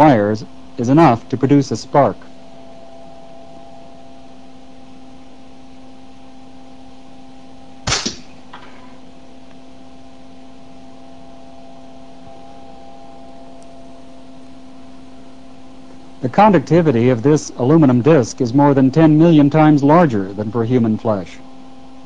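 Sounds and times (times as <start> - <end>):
electrical hum: 0.0 - 22.0
sharp electrical spark crack: 7.8 - 8.3.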